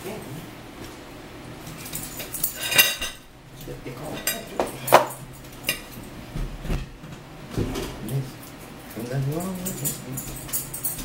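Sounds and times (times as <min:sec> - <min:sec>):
dishes and cutlery clinking: 0:01.6 - 0:06.1, 0:07.6 - 0:11.0.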